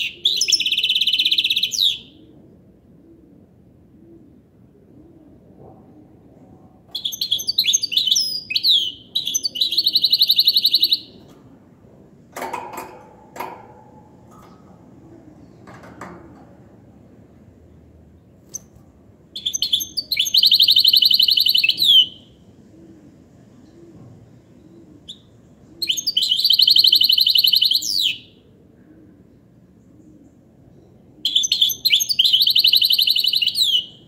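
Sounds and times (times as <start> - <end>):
bird singing trills: 0.0 - 2.2, 7.0 - 11.2, 19.4 - 22.4, 24.7 - 28.4, 30.8 - 34.0.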